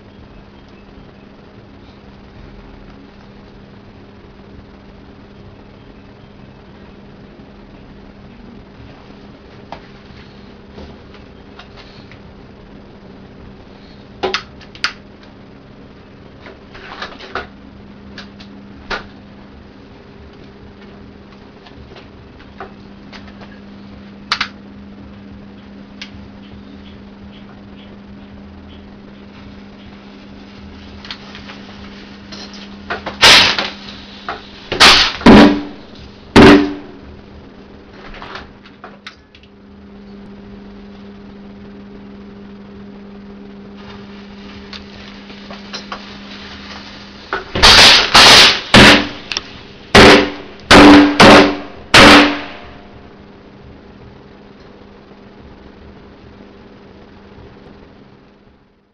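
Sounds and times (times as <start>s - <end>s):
firecracker bangs: 33.0s - 37.0s, 47.5s - 49.3s, 49.9s - 52.8s.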